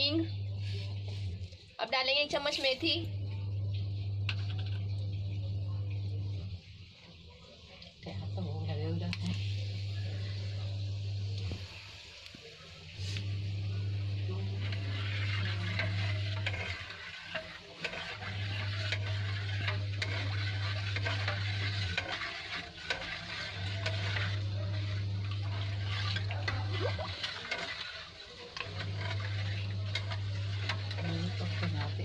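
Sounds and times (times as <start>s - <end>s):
low hum: 0.0s - 1.7s, 2.4s - 6.8s, 8.0s - 11.9s, 12.7s - 27.9s
hot oil sizzling and crackling: 10.9s - 32.0s.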